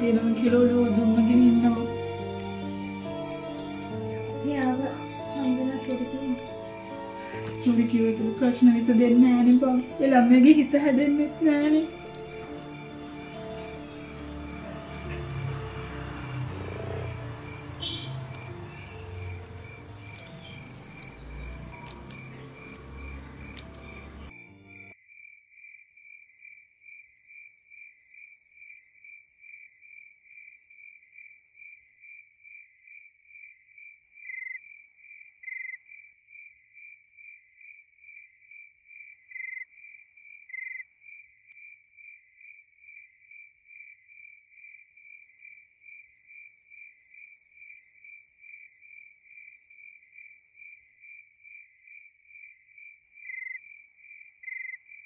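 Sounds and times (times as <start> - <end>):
crickets chirping: 0.0 - 55.0
short sharp calls: 17.0 - 24.2.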